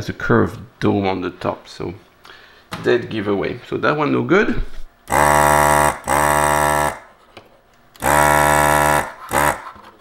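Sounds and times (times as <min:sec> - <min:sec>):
desoldering pump buzzing: 0:05.0 - 0:07.1, 0:07.9 - 0:09.9.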